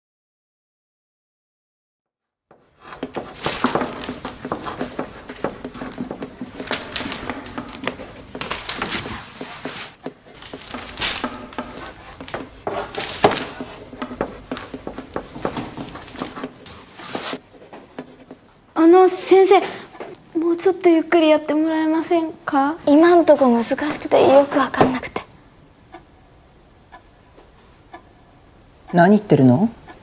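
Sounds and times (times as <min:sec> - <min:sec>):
chalk scratching on blackboard: 0:02.5 - 0:19.6
chalk tapping on blackboard: 0:02.5 - 0:20.2.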